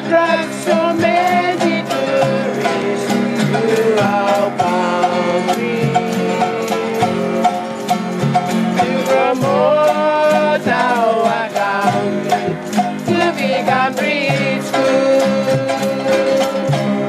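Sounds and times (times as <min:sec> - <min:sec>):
singing over strummed strings: 0:00.0 - 0:17.0.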